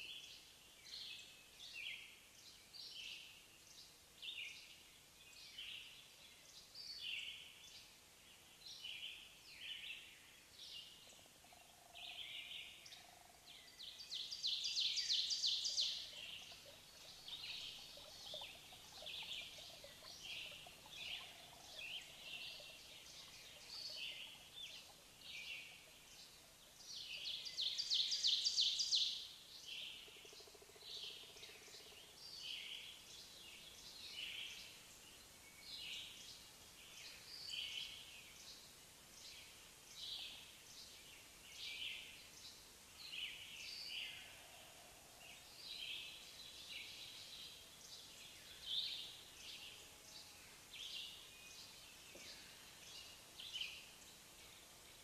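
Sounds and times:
birds chirping: 0:10.8 - 0:29.2.

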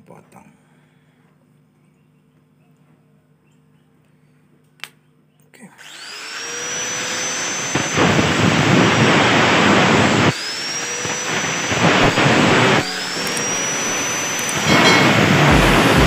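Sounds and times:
angle grinder whine: 0:05.8 - 0:16.0
grinder cutting metal tube: 0:05.8 - 0:16.0.

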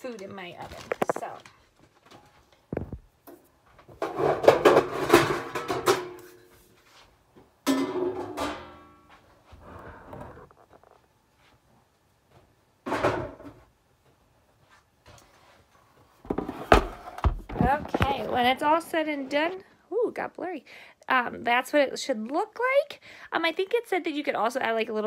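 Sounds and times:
metal bakeware rattling clatter: 0:04.0 - 0:06.2.

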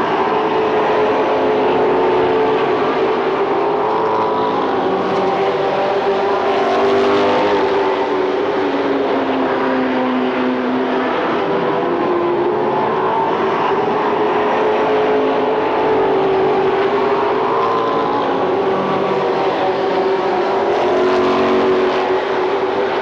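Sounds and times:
stock car engines racing: 0:00.0 - 0:23.0.

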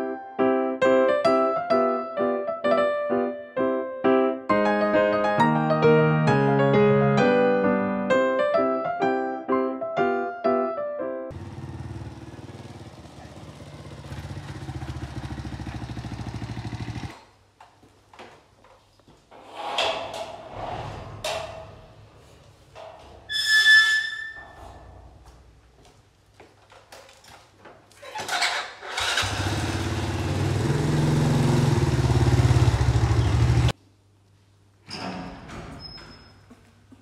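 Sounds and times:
motorcycle engine running: 0:11.3 - 0:17.1, 0:29.0 - 0:33.7
wooden door squeaking: 0:23.2 - 0:25.0, 0:34.9 - 0:36.5.

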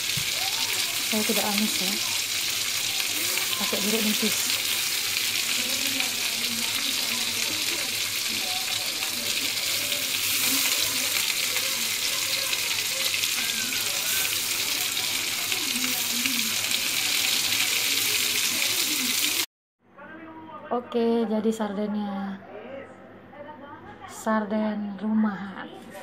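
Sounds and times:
vegetables sizzling in oil: 0:00.0 - 0:19.5.

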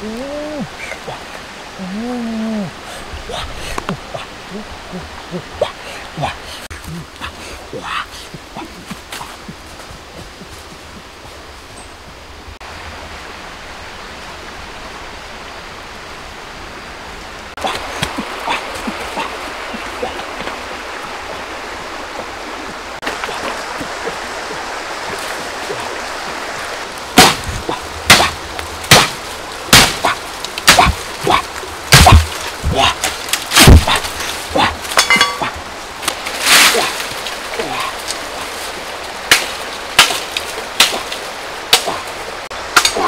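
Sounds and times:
outdoor hiss: 0:00.0 - 0:42.9
blade hacking bamboo: 0:27.2 - 0:37.7, 0:39.3 - 0:42.0.

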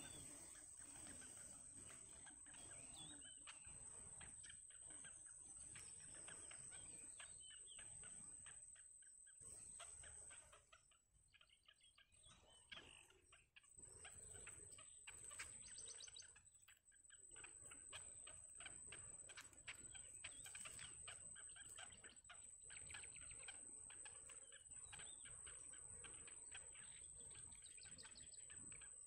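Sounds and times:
bird chicks chirping: 0:00.0 - 0:29.0.

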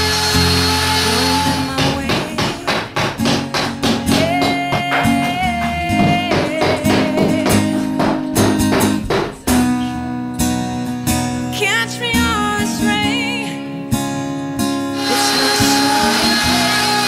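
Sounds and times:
percussion: 0:00.0 - 0:11.2
acoustic guitar: 0:00.0 - 0:17.0.

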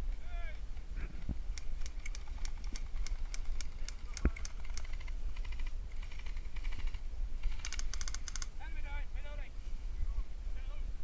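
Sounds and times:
wind rumble on microphone: 0:00.0 - 0:11.0
airsoft rifle shots: 0:01.6 - 0:08.6.

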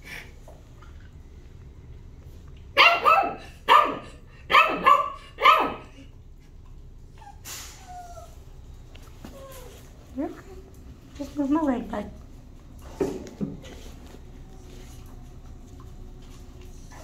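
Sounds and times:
dog barking: 0:02.8 - 0:05.9.

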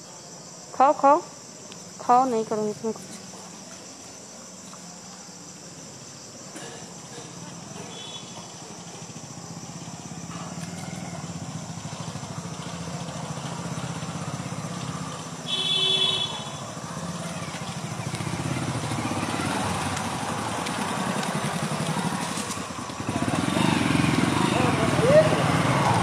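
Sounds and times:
engine humming: 0:07.0 - 0:26.0.

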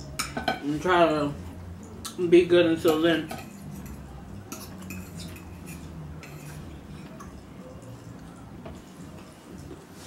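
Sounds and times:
cutlery clinking on a plate: 0:00.2 - 0:00.7, 0:02.8 - 0:07.3.

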